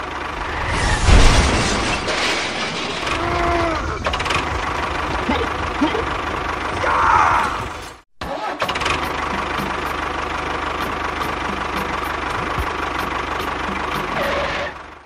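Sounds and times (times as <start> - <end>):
tractor engine idling: 0.0 - 0.6, 3.8 - 8.0, 8.7 - 15.0.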